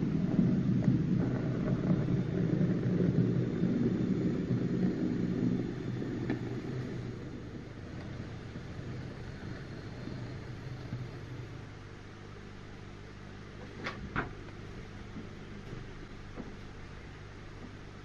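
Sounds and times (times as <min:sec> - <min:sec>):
model train running on track: 0:00.0 - 0:13.1.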